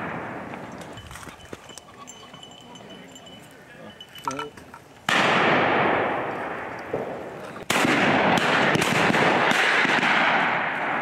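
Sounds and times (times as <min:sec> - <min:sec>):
rolling echo of shots: 0:05.1 - 0:11.0
shotgun shots: 0:05.1 - 0:11.0.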